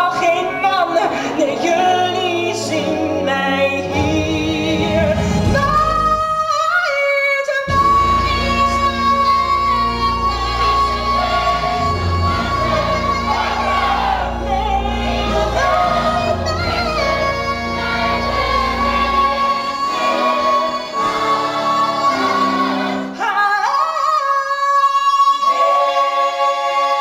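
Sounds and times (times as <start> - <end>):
chorus singing: 0.0 - 6.3, 7.7 - 27.0
orchestra playing: 0.0 - 6.6, 7.7 - 23.6.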